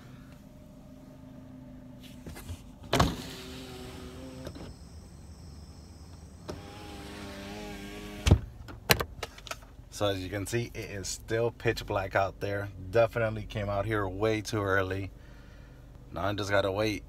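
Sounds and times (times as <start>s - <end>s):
faint steady hum: 0.0s - 17.0s
car window motor whirring: 2.2s - 8.5s.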